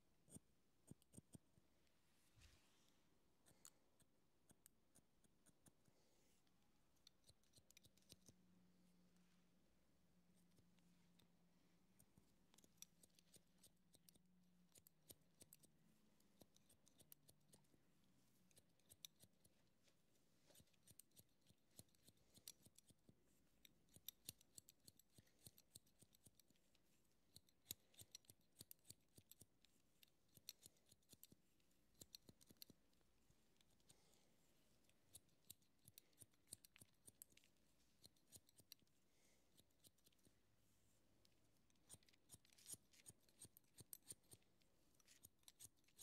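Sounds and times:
scissors snipping hair: 0:07.0 - 0:08.4, 0:12.4 - 0:17.8, 0:18.4 - 0:34.0, 0:34.8 - 0:40.3, 0:41.2 - 0:46.0.

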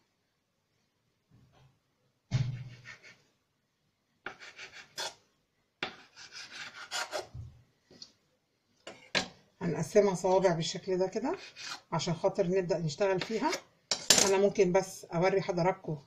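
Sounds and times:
knife scraping on stone countertop: 0:04.3 - 0:05.2, 0:05.8 - 0:07.3, 0:11.4 - 0:11.9.

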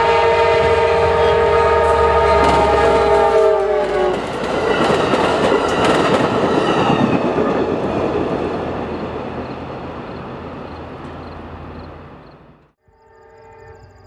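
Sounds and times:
train rumble: 0:00.0 - 0:12.8
train wheels clicking over rail joints: 0:02.3 - 0:09.6.

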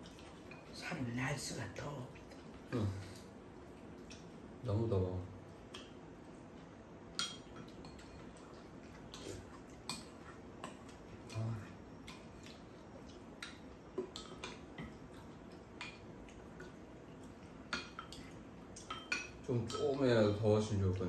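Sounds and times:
chopsticks clicking on ceramic bowls: 0:16.6 - 0:20.1.

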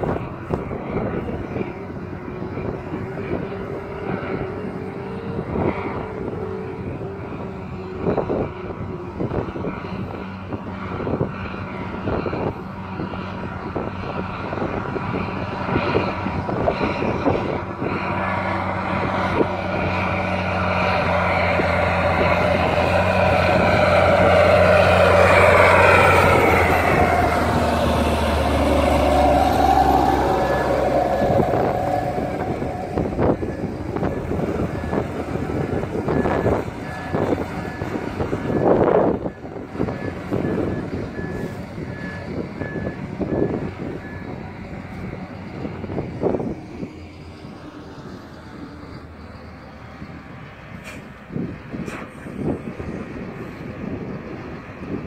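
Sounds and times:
tractor engine running: 0:00.0 - 0:55.0
wind on microphone: 0:00.0 - 0:55.0.

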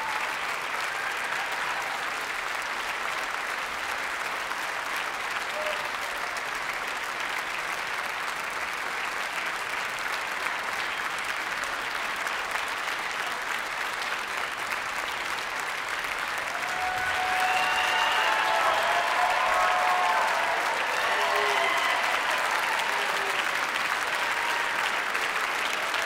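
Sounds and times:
people cheering: 0:00.0 - 0:02.8, 0:05.4 - 0:06.8, 0:15.9 - 0:26.0
audience applauding: 0:00.0 - 0:26.0.

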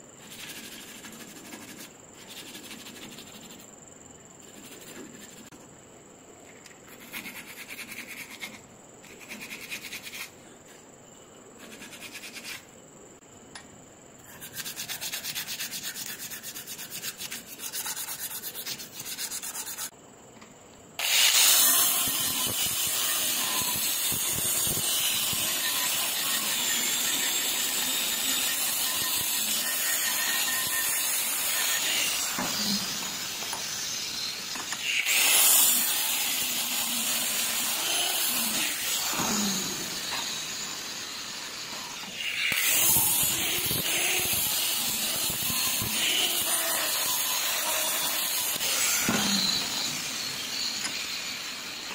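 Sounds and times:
hand sanding metal: 0:00.2 - 0:03.7, 0:06.9 - 0:10.3, 0:11.6 - 0:12.6, 0:14.3 - 0:19.9.

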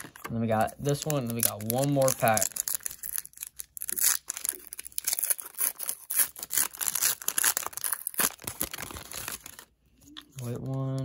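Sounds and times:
foil pack crinkling and tearing: 0:00.0 - 0:09.7.

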